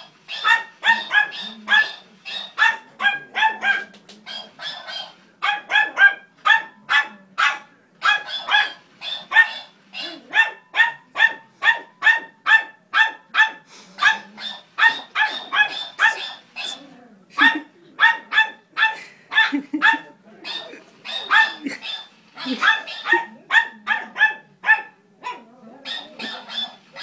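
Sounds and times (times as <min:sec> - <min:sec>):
small dog barking: 0:00.3 - 0:16.8, 0:17.4 - 0:27.0.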